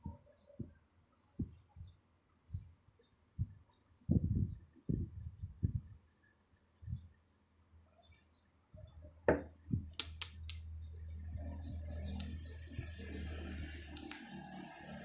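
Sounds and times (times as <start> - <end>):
low steady hum: 8.8 - 15.0
pliers clicking: 10.0 - 10.6.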